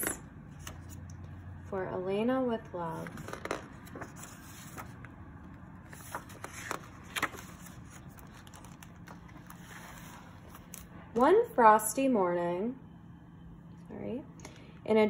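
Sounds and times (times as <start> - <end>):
book pages turning: 2.9 - 10.9.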